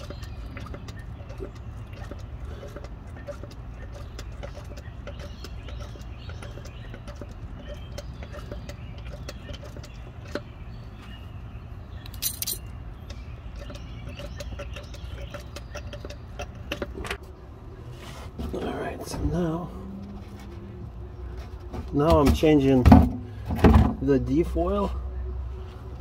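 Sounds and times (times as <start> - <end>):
hand pump squeaking and clicking: 0.0 - 10.5, 12.0 - 17.2.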